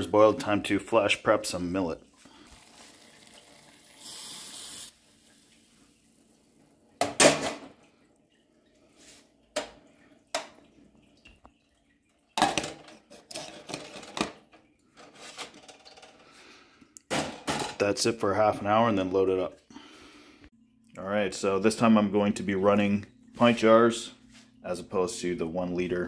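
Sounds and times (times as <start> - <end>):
grain poured into boiling water: 2.3 - 6.7.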